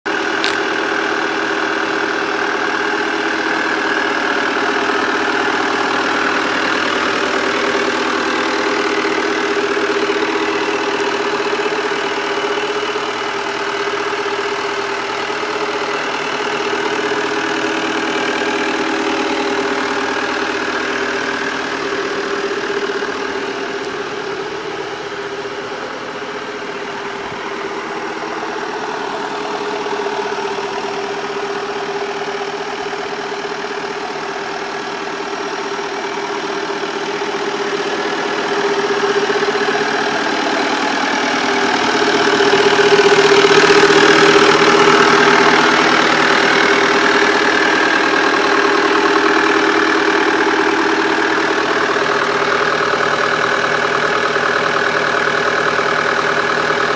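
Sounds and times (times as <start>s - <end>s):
tractor engine idling: 0.0s - 56.9s.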